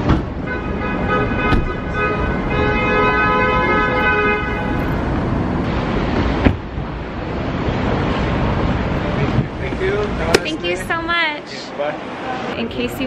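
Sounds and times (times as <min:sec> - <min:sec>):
car horn honking: 0:00.4 - 0:05.1.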